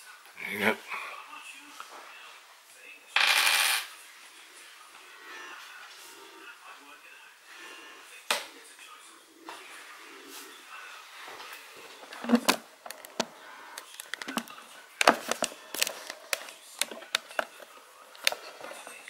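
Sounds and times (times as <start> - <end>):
plastic clips snapping: 12.2 - 17.6.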